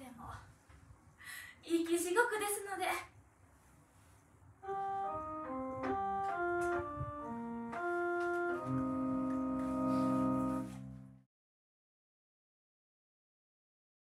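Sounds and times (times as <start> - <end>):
electronic keyboard melody: 4.6 - 11.3
sustained keyboard chord: 4.6 - 11.3.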